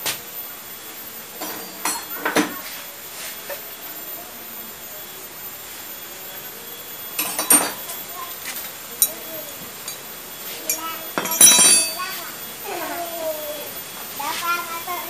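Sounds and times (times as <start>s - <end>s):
pliers clicking and scraping on metal: 9.0s - 9.2s, 9.8s - 10.0s.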